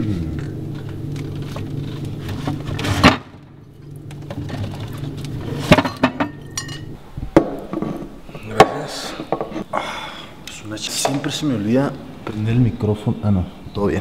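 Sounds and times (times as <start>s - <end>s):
glass bottles clinking: 4.2s - 7.0s.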